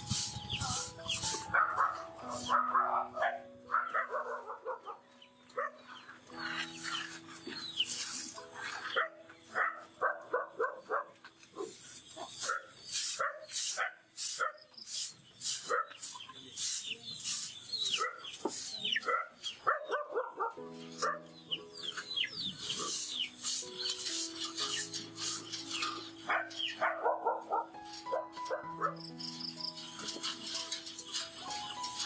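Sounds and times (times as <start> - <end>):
broom sweeping floor: 0.0 - 2.6, 6.3 - 9.7, 11.4 - 19.2, 21.8 - 26.8, 29.2 - 32.0
chickens clucking and peeping: 0.0 - 32.0.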